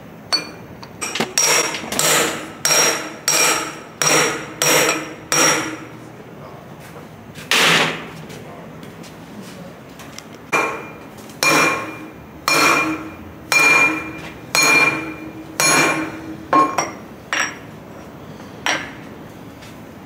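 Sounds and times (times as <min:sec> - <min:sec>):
hammer blows on metal: 0:01.4 - 0:05.9, 0:10.5 - 0:17.6.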